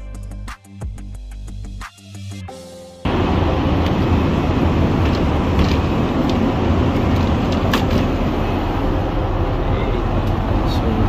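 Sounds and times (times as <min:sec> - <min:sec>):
background music: 0:00.0 - 0:03.1
airplane cabin roar: 0:03.0 - 0:11.0.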